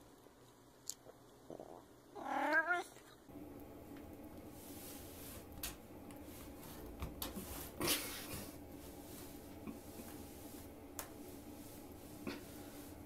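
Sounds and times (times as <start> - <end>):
faint steady hum: 0.0 - 13.0
rug scraping over tiled floor: 4.4 - 13.0.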